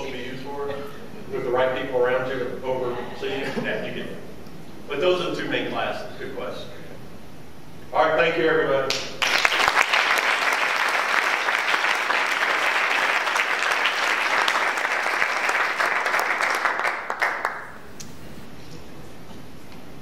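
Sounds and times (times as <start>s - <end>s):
audience applauding: 9.2s - 17.9s.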